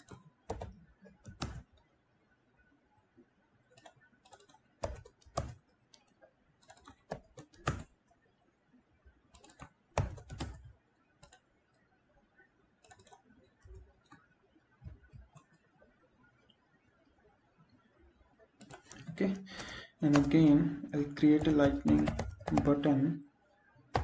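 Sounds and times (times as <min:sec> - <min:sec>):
computer keyboard typing: 0:00.0 - 0:01.9, 0:03.7 - 0:08.0, 0:09.3 - 0:11.8, 0:12.8 - 0:15.7, 0:18.6 - 0:23.0.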